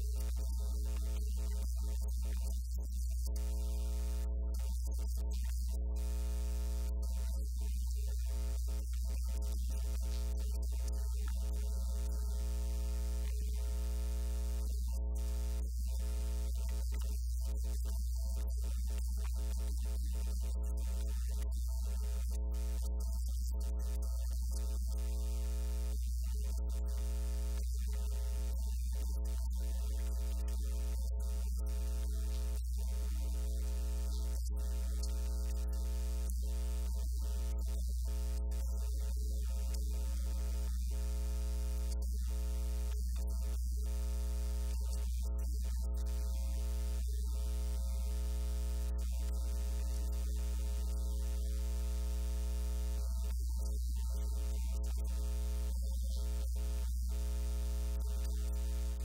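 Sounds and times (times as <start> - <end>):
electrical mains hum: 0.0 - 2.5.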